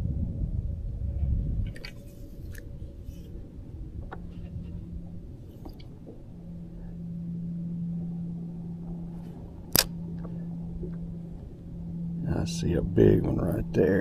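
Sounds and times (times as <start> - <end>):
electric trolling motor hum: 0.0 - 14.0
low rumble: 0.0 - 14.0
sharp click: 9.7 - 10.0.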